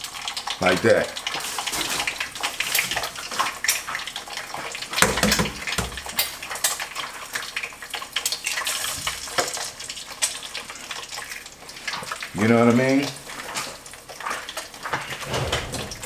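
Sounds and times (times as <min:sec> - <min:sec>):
egg sizzling in a pan: 0:00.0 - 0:15.3.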